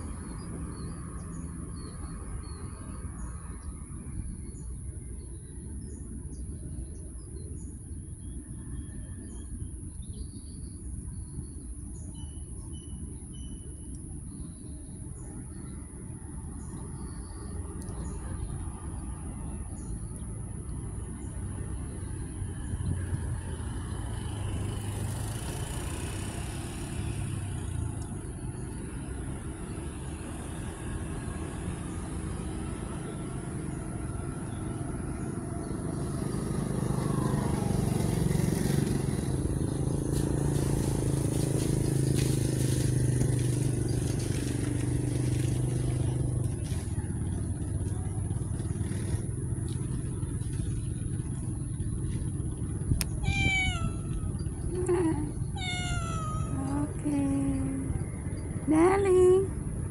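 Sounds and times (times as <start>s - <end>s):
vehicle engine hum: 0.0s - 59.9s
cat meowing: 53.0s - 57.0s.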